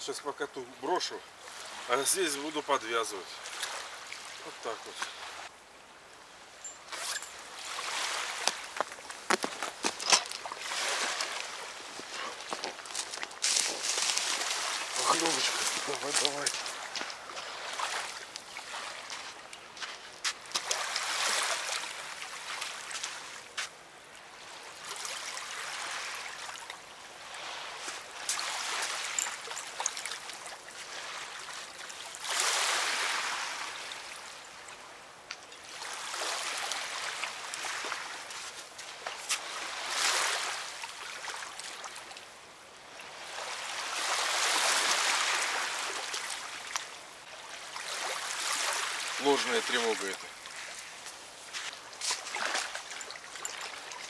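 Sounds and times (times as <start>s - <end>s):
river water washing at bank: 0.0s - 54.0s.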